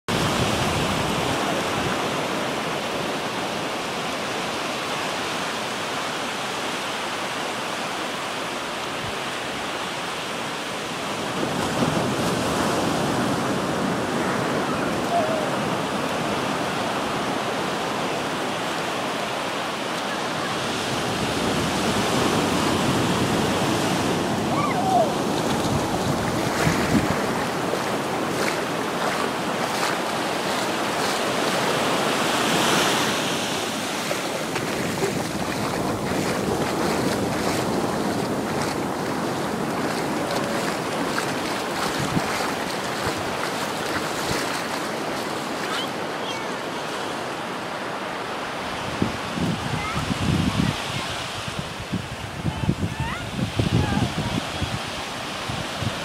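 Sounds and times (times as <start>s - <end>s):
surf washing over sand: 0.1s - 56.0s
wind buffeting microphone: 20.8s - 32.0s, 33.7s - 45.7s, 48.8s - 56.0s.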